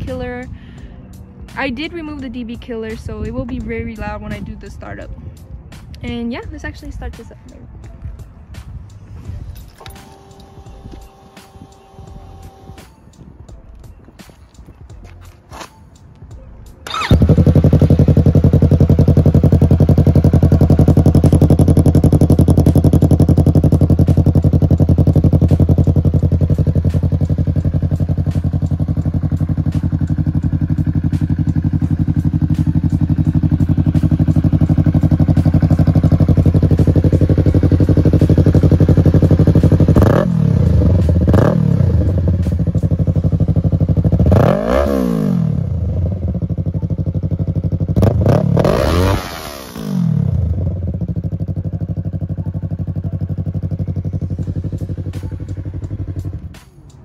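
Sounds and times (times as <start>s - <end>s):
motorcycle engine idling: 0.0s - 15.3s, 16.0s - 57.0s
engine revving in throttle blips: 16.8s - 56.7s.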